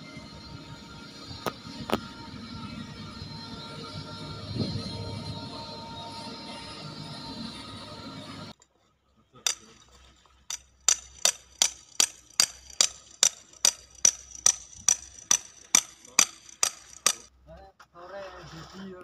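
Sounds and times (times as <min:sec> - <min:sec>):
metal-on-metal tapping: 0:09.5 - 0:09.8, 0:10.5 - 0:17.3.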